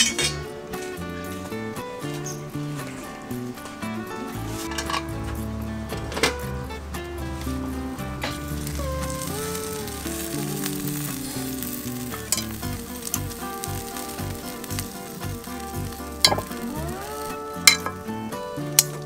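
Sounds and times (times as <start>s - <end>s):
meat sizzling on grill: 6.4s - 19.0s
metal tongs clicking: 12.3s - 12.6s, 17.6s - 18.0s.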